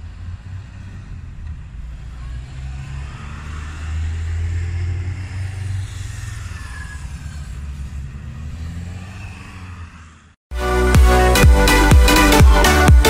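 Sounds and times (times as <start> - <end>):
cars driving past: 0.0 - 10.4.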